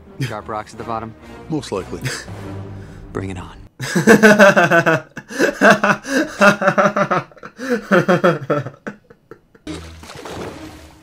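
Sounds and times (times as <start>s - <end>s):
man laughing hard: 3.8s - 9.7s.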